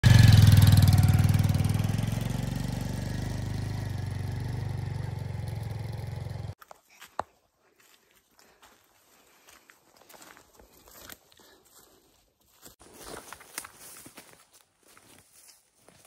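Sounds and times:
engine running with low hum: 0:00.0 - 0:06.6.

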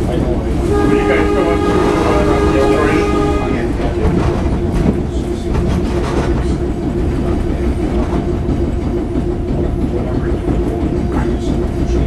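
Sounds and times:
train car rumbling: 0:00.0 - 0:12.0
wheels clicking and knocking: 0:03.2 - 0:12.0.

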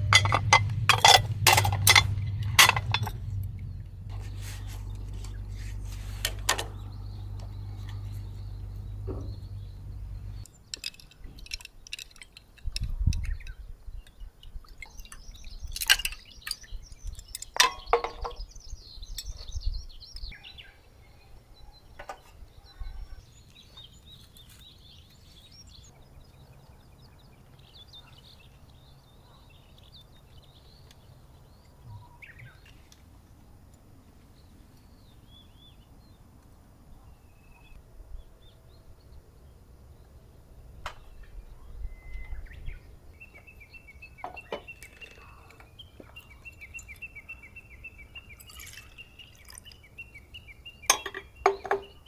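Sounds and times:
sharp clicks and knocks: 0:00.0 - 0:03.6
low steady hum: 0:00.0 - 0:20.2
small birds chirping: 0:00.0 - 0:52.0.

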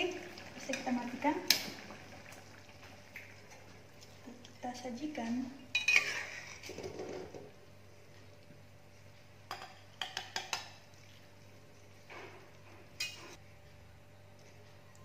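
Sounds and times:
metal spatula scraping a wok: 0:05.8 - 0:06.7.

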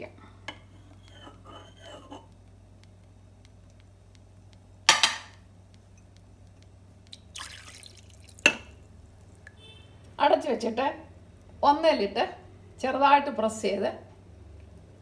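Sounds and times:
faint steady hum: 0:00.0 - 0:15.0
liquid splashing pour: 0:07.1 - 0:09.6.

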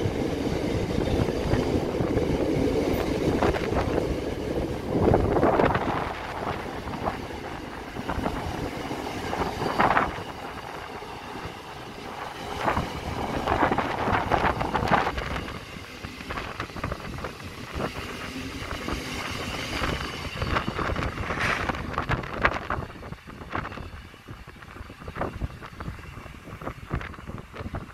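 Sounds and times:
train wagons rumbling on rails: 0:00.0 - 0:27.9.

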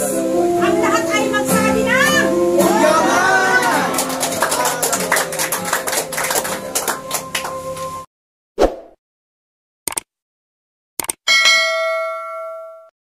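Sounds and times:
congregational praise music: 0:00.0 - 0:08.1.

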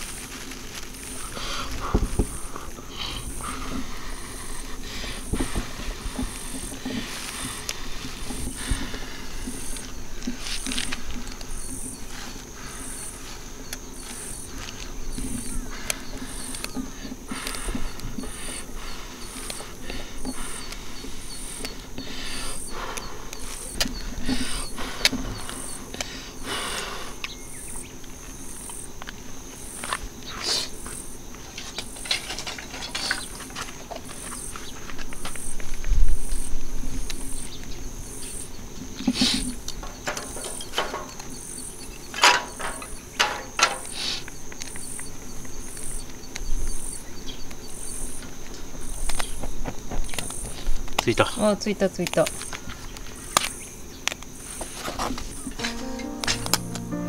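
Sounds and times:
wood shavings clicking and scraping: 0:00.0 - 0:12.5
insects chirping: 0:00.0 - 0:57.0.

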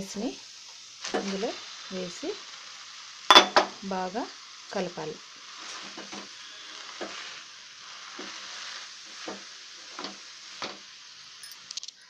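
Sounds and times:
frying sizzle: 0:00.0 - 0:12.0
spatula knocking and scraping pan: 0:05.6 - 0:07.4, 0:08.0 - 0:10.8.

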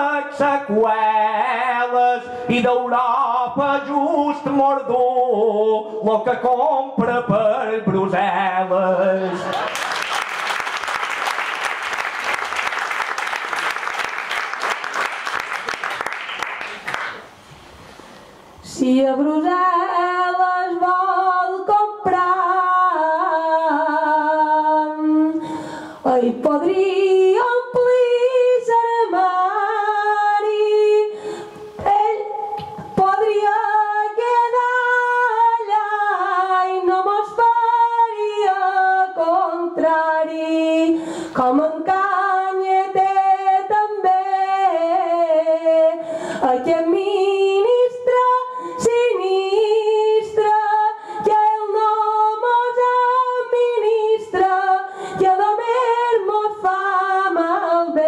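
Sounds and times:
woman singing unaccompanied: 0:18.6 - 0:25.4, 0:26.0 - 0:58.0.

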